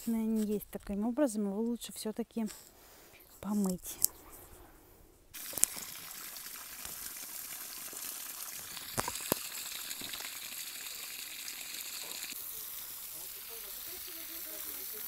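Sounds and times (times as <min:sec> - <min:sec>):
water spraying from hose: 0:05.4 - 0:15.0.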